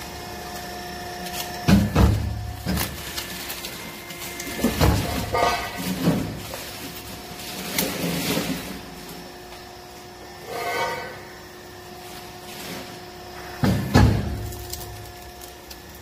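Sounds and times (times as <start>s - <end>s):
machine humming: 0.0s - 16.0s
metal clanks and scrapes: 1.7s - 8.8s, 10.4s - 11.4s.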